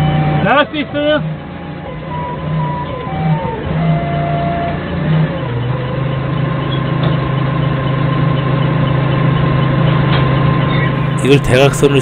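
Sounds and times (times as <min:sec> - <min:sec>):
forklift engine running: 0:00.0 - 0:12.0
thin steady whine: 0:11.0 - 0:12.0.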